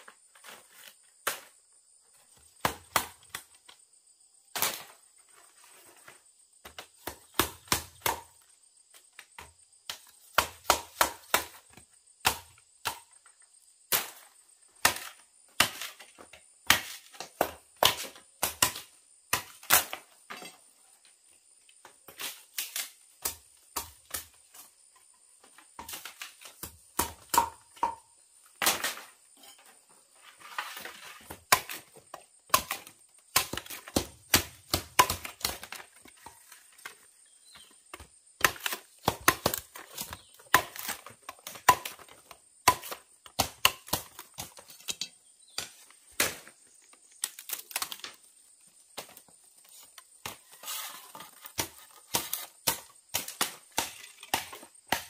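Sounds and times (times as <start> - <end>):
chopping blows on wood: 9.9 - 11.6, 51.6 - 55.0.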